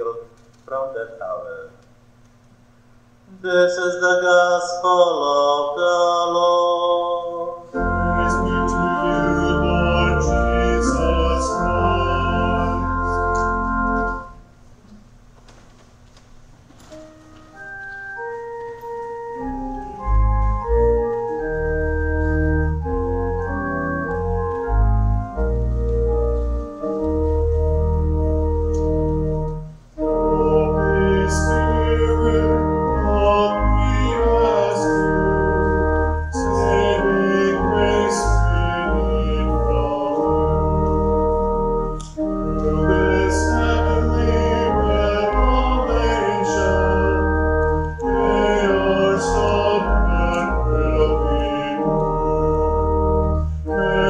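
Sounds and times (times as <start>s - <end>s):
voices singing a hymn: 3.4s - 14.2s, 30.2s - 40.9s, 42.2s - 52.6s, 53.7s - 54.0s
church organ playing: 3.4s - 14.7s, 16.8s - 54.0s.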